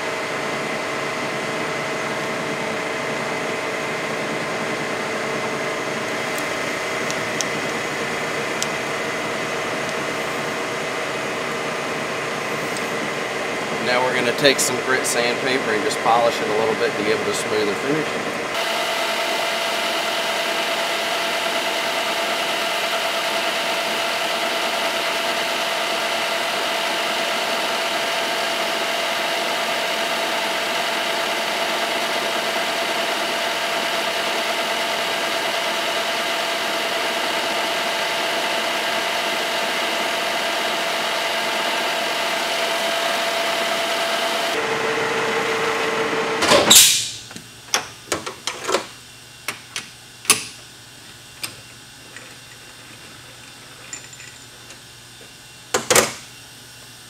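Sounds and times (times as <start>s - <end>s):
metal lathe running: 0.0s - 46.4s, 51.0s - 55.7s
loud brief sound: 46.5s - 47.2s.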